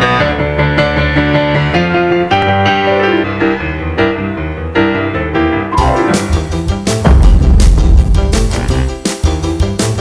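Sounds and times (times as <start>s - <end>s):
piano music: 0.0s - 8.3s.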